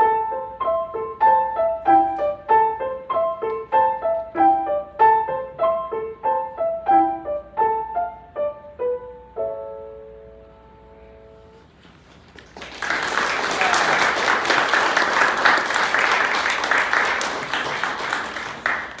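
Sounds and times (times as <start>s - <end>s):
audience applauding: 12.3s - 19.0s.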